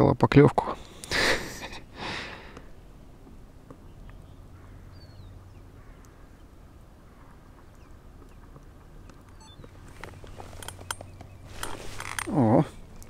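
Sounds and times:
faint small bird chirp: 3.9s - 6.4s, 7.1s - 11.5s
crow cawing: 4.6s - 5.1s, 5.7s - 6.4s.

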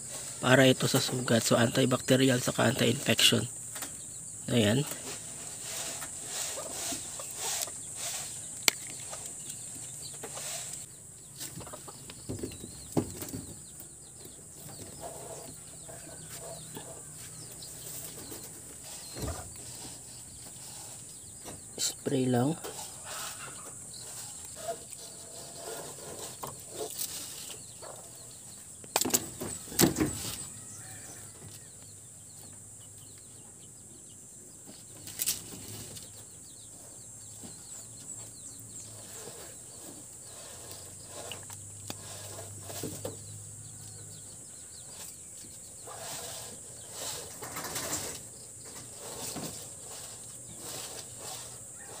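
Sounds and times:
outdoor ambience with high hiss: 0.0s - 52.0s
wire-mesh cage rattling: 45.8s - 52.0s.

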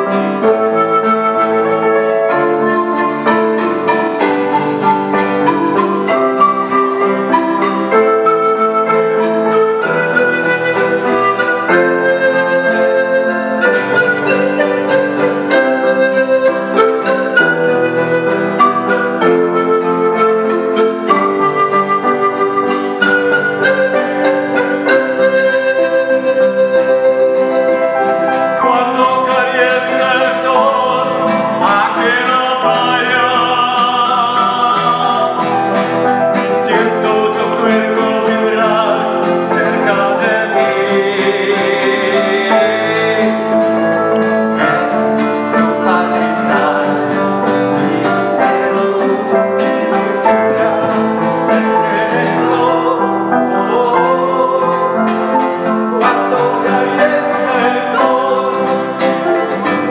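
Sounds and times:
acoustic guitar: 0.0s - 59.9s
panpipe melody: 0.0s - 59.9s
piano accompaniment: 0.0s - 59.9s
man singing: 28.4s - 59.9s.

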